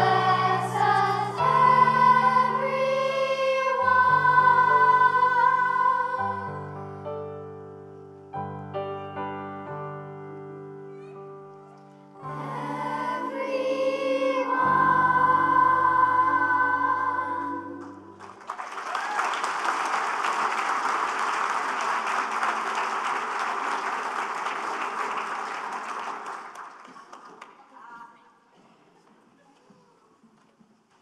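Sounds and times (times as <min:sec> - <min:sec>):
voices singing worship song: 0:00.0 - 0:06.8, 0:12.2 - 0:18.2
congregation applauding: 0:17.8 - 0:27.8.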